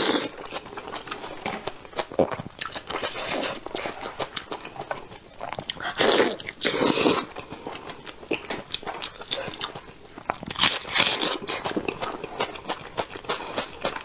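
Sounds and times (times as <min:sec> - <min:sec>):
slurping and sucking meat: 0:00.0 - 0:01.4, 0:02.1 - 0:07.7
wet chewing: 0:00.0 - 0:14.0.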